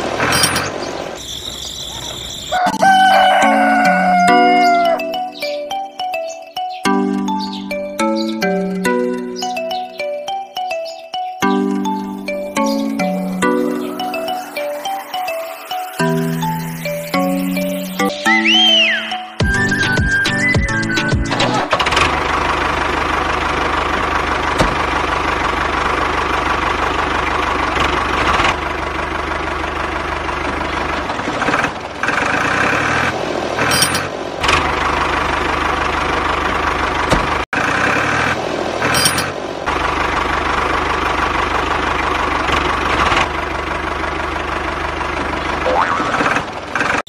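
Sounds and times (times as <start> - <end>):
tractor engine chugging: 19.4 - 47.0.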